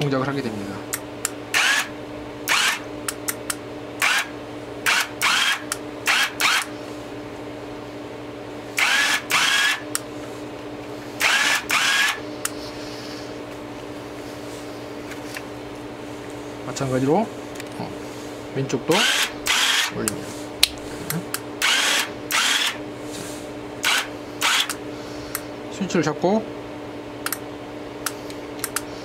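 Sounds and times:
steady low hum: 0.0s - 29.0s
electric gear motor running: 0.9s - 6.8s, 8.7s - 10.3s, 11.1s - 12.6s, 18.8s - 20.2s, 21.0s - 23.2s, 23.8s - 25.4s.

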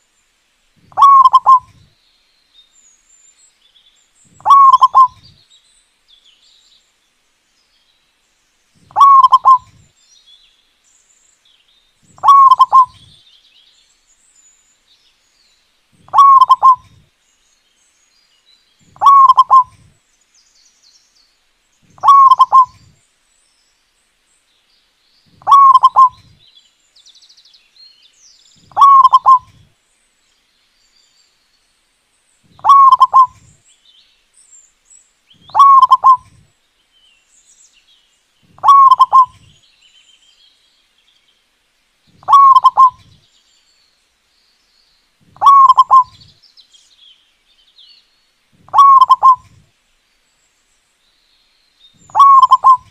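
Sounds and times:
dove cooing: 0.9s - 1.9s, 4.4s - 5.3s, 8.8s - 9.8s, 12.1s - 13.2s, 16.0s - 17.0s, 18.9s - 19.9s, 21.9s - 22.9s, 25.4s - 26.4s, 28.7s - 29.7s, 32.5s - 33.6s, 35.4s - 36.4s, 38.5s - 39.5s, 42.2s - 43.1s, 45.3s - 46.2s, 48.7s - 49.6s, 52.1s - 52.9s.

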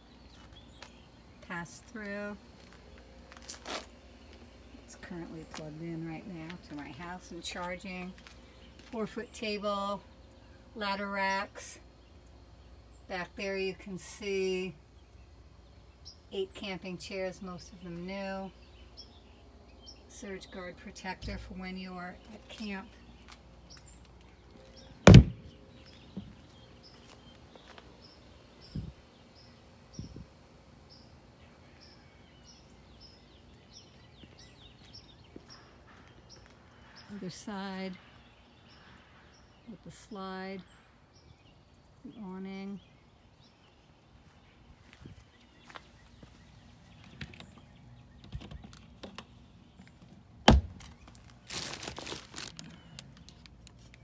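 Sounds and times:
compartment door slamming: 25.1s - 25.4s
loud sharp knock: 25.1s - 25.4s
soft thuds: 25.1s - 26.4s
rustling: 50.7s - 54.0s.

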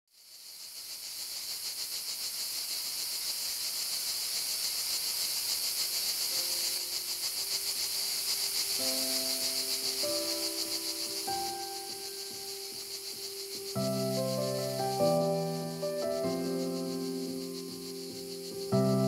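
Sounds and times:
cicadas droning: 0.1s - 19.0s
faint held music notes: 6.3s - 19.0s.

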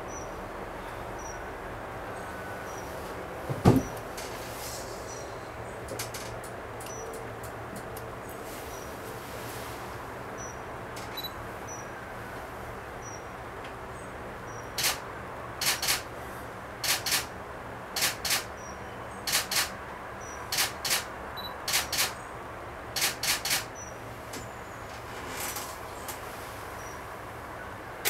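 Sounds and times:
steady outdoor hiss: 0.0s - 28.0s
camera shutter clicks: 14.8s - 15.0s, 15.6s - 16.1s, 16.8s - 17.3s, 18.0s - 18.5s, 19.3s - 19.7s, 20.5s - 21.1s, 21.7s - 22.2s, 23.0s - 23.7s.

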